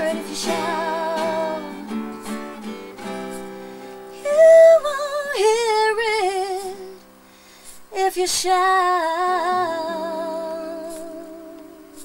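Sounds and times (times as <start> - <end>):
woman singing with vibrato: 0.0 - 2.1, 4.1 - 7.0, 7.9 - 12.0
acoustic guitar picking: 0.0 - 12.0.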